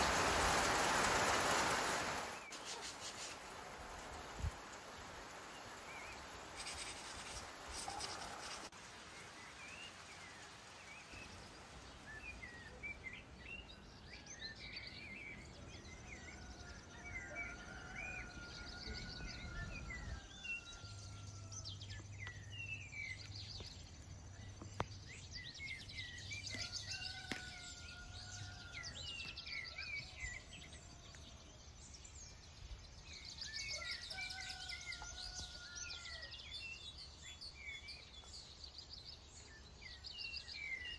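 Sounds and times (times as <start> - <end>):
background hiss: 0.0 - 15.1
birds chirping and singing: 12.0 - 40.9.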